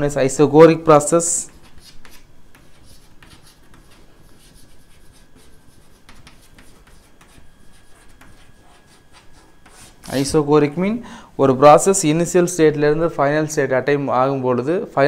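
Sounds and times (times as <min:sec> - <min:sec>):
chalk scratching on blackboard: 0:01.2 - 0:10.4
chalk tapping: 0:01.3 - 0:10.3.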